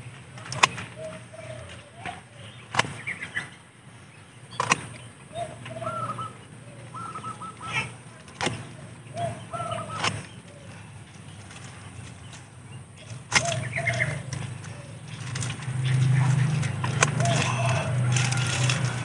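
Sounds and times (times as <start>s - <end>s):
birds calling: 0.0s - 19.0s
pruning shears snipping twigs: 0.4s - 1.0s, 2.0s - 3.1s, 4.5s - 5.1s, 8.2s - 8.8s, 9.9s - 19.0s.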